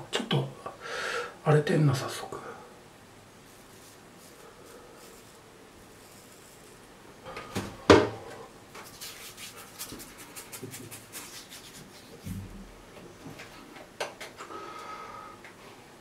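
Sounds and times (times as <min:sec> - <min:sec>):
scratching scalp stubble: 0:03.5 - 0:06.9, 0:08.8 - 0:12.3.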